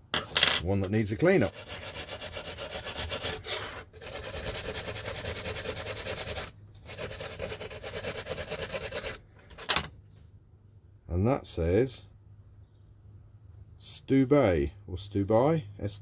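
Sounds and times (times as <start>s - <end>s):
wire brush scrubbing metal: 0.8s - 9.2s.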